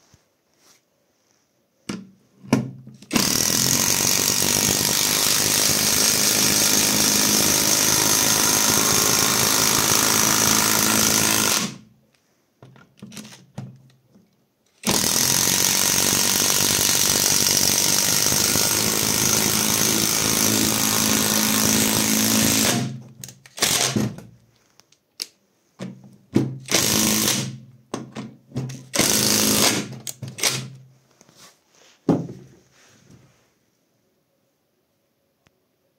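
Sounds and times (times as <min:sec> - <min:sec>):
impact driver hammering screw: 0:03.0 - 0:11.8, 0:14.8 - 0:24.2, 0:26.5 - 0:27.6, 0:28.7 - 0:30.8.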